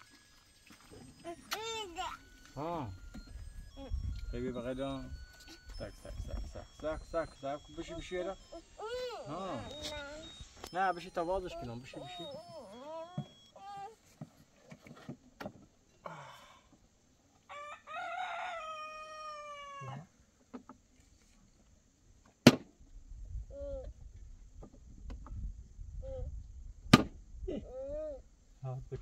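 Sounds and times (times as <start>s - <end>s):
rooster crowing: 17.5s - 20.1s.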